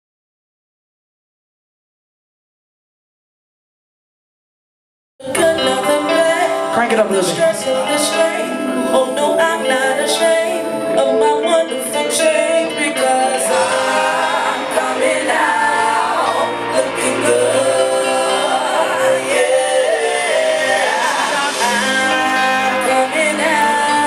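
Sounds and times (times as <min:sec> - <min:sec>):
live band playing: 0:05.2 - 0:24.0
woman singing: 0:05.2 - 0:24.0.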